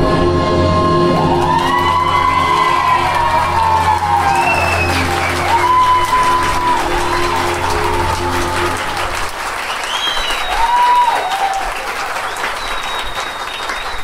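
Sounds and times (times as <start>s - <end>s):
music held notes: 0.0s - 9.4s
audience applauding and cheering: 1.0s - 14.0s
high-pitched whoops: 1.1s - 9.1s, 9.8s - 12.0s.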